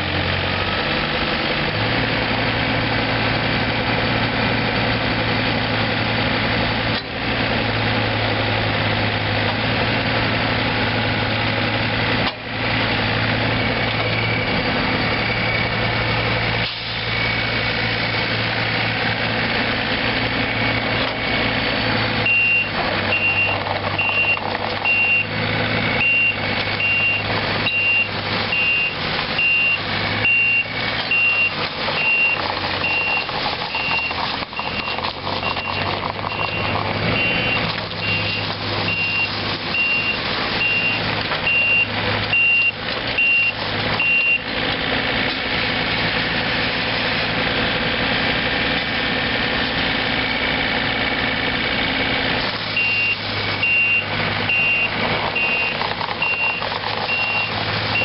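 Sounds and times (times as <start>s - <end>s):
excavator diesel engine running: 0.0s - 58.0s
high-pitched travel alarm beeping: 26.0s - 44.4s, 52.8s - 58.0s.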